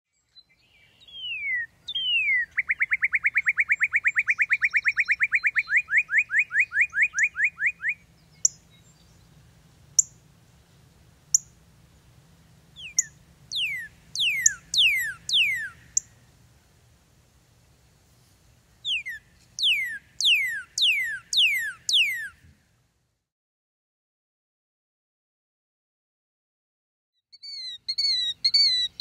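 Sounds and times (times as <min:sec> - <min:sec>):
bird singing whistles and trill: 0:00.2 - 0:09.2, 0:12.8 - 0:16.1, 0:18.8 - 0:22.4, 0:27.4 - 0:29.0
sharp bird chip notes: 0:12.8 - 0:16.2, 0:18.9 - 0:22.3.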